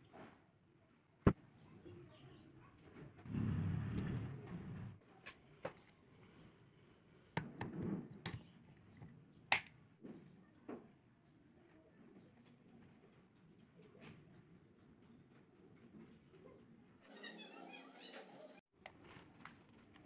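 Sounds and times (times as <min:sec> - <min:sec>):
sharp clicks and taps: 0:09.5 - 0:09.8.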